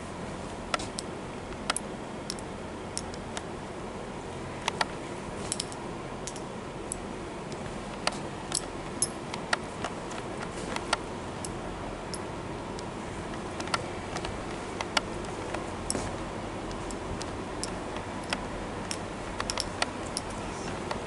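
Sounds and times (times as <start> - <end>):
room background hiss: 0.0 - 21.0
sharp clicks and ticks: 3.0 - 3.5, 16.7 - 21.0.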